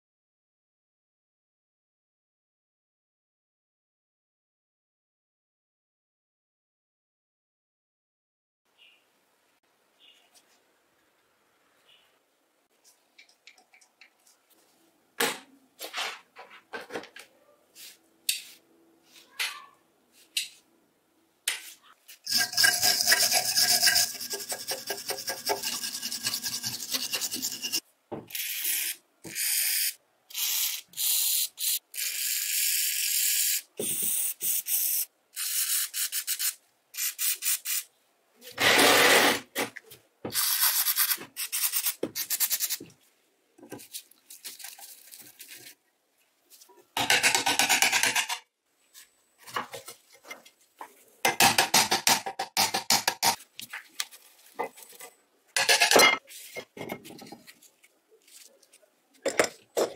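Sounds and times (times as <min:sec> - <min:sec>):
metal rubbing and scraping: 0:22.2 - 0:27.8.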